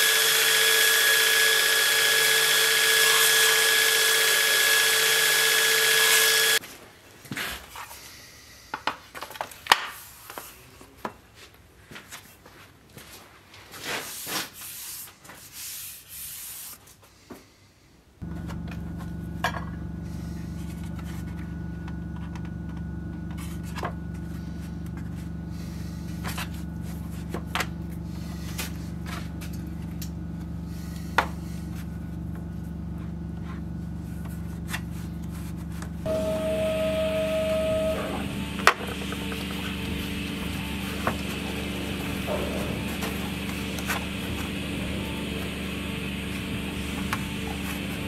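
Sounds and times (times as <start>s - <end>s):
steady low hum: 18.2s - 48.0s
hand rubbing fur hide: 33.0s - 38.0s.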